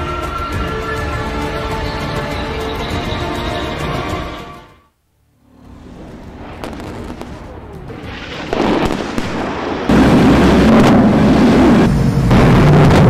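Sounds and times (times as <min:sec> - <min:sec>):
crackling bomb explosions: 0:05.7 - 0:13.0.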